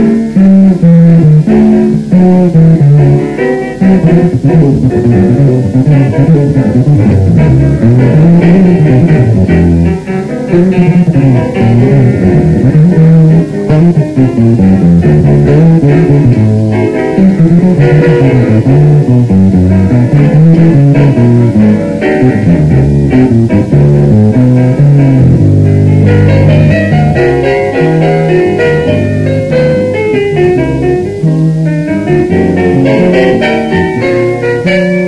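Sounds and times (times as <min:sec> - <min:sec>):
jazz piano chords: 0:00.0 - 0:35.0
plucked double bass: 0:00.0 - 0:35.0.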